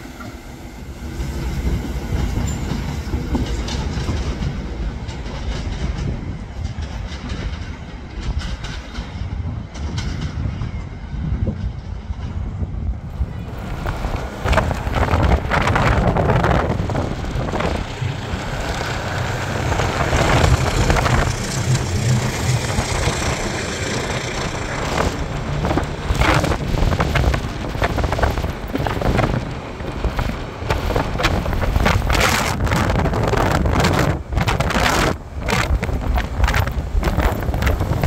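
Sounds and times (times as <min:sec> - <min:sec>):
wind buffeting microphone: 0:00.2 - 0:38.0
car road noise: 0:13.1 - 0:38.0.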